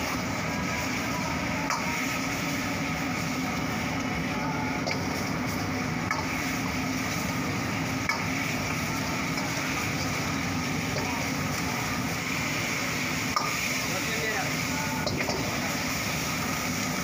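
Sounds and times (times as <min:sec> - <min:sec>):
food sizzling: 0:00.0 - 0:17.0
gas burner noise: 0:00.0 - 0:17.0.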